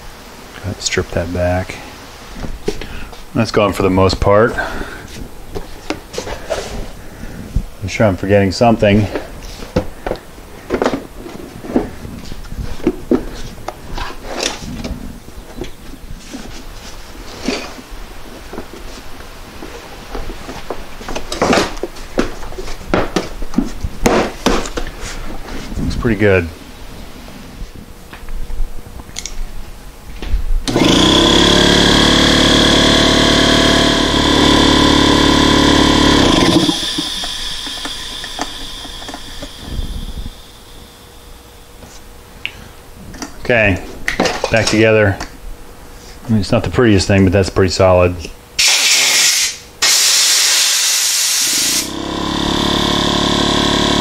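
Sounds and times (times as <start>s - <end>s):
electric air compressor running: 30.7s - 41.6s, 48.6s - 54.0s.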